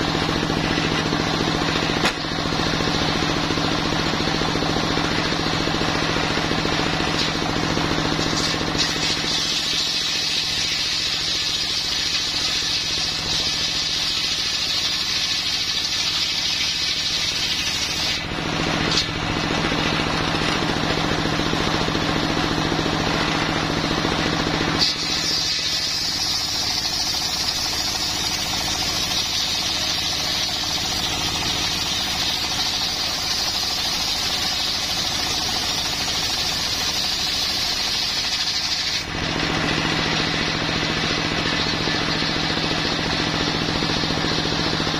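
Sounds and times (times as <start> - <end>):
saw blade cutting log: 6.4 - 20.6, 24.6 - 40.5.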